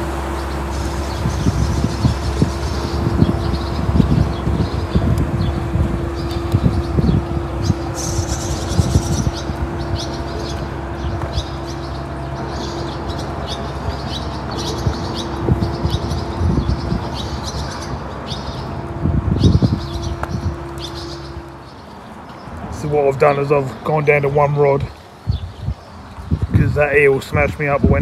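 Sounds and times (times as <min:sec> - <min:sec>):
low rumble: 0:00.0 - 0:21.9
small birds chirping: 0:00.0 - 0:28.0
steady hum: 0:00.0 - 0:28.0.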